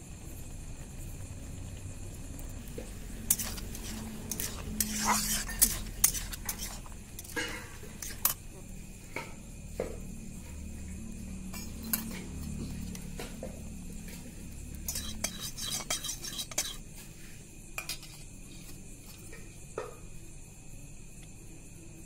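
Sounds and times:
metal cookware clinking: 3.3s - 8.4s, 14.8s - 16.8s.

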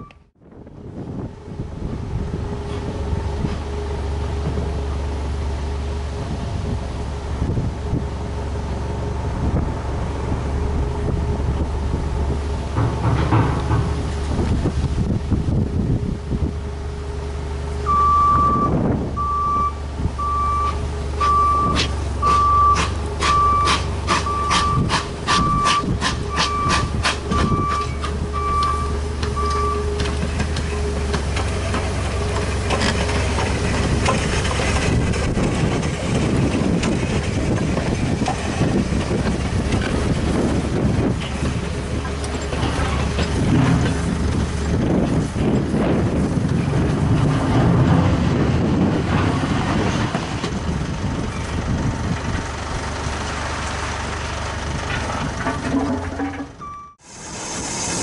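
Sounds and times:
electronic beeps: 0.0s - 0.2s
steam locomotive clanking: 12.6s - 14.8s, 20.7s - 50.6s, 54.8s - 58.0s.

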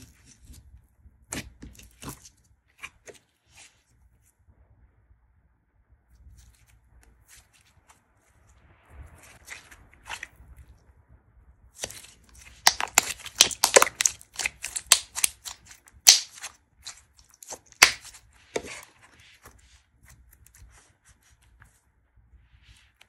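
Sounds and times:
slime clicking and popping: 11.8s - 18.8s.

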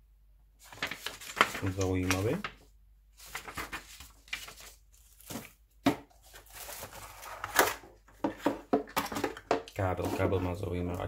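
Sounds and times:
paper leaflets rustling: 0.6s - 11.0s.

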